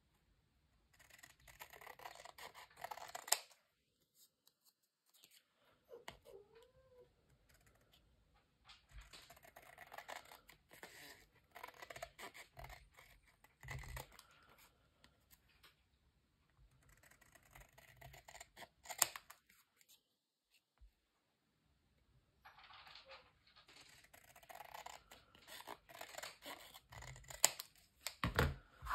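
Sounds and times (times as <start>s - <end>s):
scissors snipping card: 23.8s - 28.2s.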